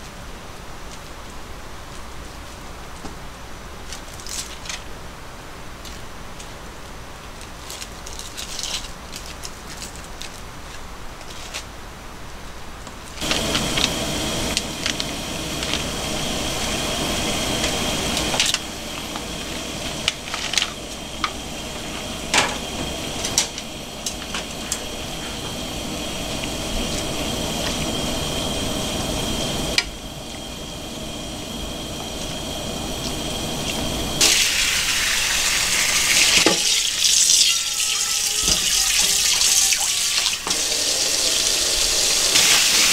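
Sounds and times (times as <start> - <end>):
hot water pouring through colander: 13.2 - 42.9.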